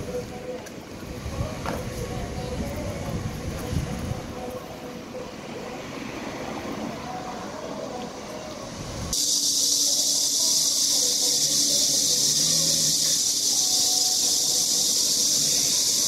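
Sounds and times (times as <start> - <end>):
rumbling background noise: 0.0 - 16.0
steady high-pitched hiss: 6.8 - 16.0.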